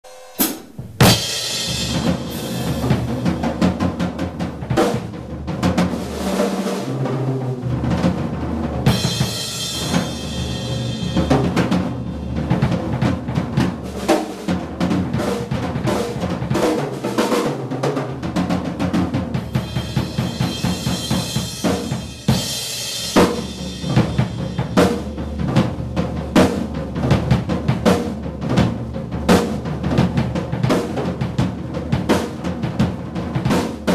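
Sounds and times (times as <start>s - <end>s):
drum kit played fast: 0.0s - 33.9s
crashing cymbals: 0.1s - 3.4s, 8.9s - 12.6s, 19.4s - 25.4s.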